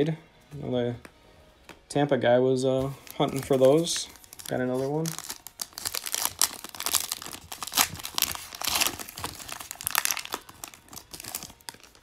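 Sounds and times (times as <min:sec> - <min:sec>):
foil wrapper crinkling: 0:02.9 - 0:12.0.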